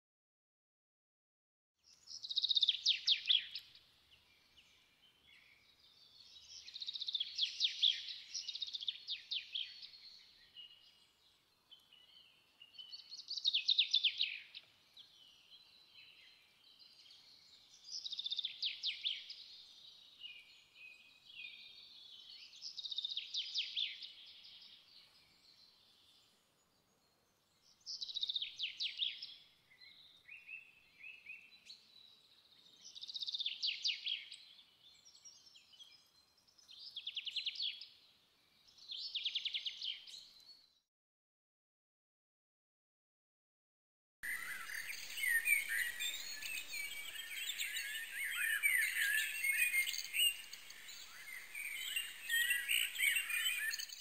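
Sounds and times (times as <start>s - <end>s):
songbird trilling: 44.2s - 54.0s.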